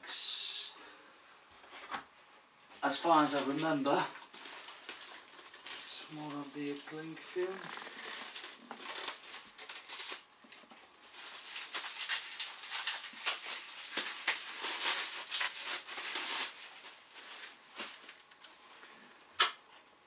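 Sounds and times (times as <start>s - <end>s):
cling film crackling rustle: 2.8s - 18.8s.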